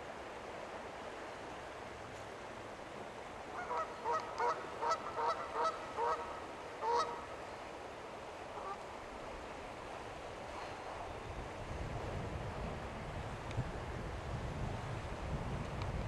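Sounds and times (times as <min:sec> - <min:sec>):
steady background hiss: 0:00.0 - 0:16.0
waterfowl honking: 0:03.5 - 0:07.3, 0:08.5 - 0:08.8.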